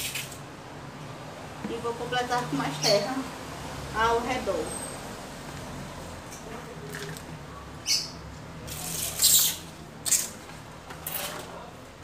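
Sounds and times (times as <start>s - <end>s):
potting soil rustling and scraping: 8.6s - 11.8s.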